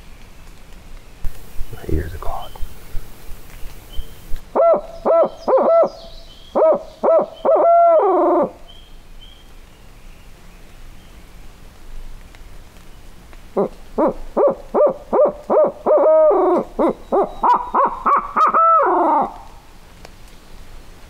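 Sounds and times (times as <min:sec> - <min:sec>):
owl hoot call: 0:01.4 - 0:08.6, 0:13.6 - 0:19.6.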